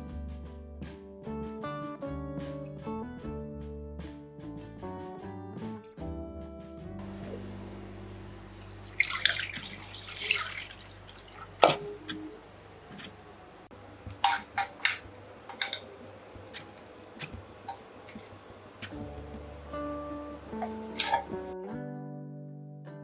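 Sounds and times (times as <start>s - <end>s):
milk pouring into pot: 8.7s - 11.8s
kitchenware clicks and taps: 11.6s - 12.3s, 14.1s - 19.0s, 20.6s - 21.4s.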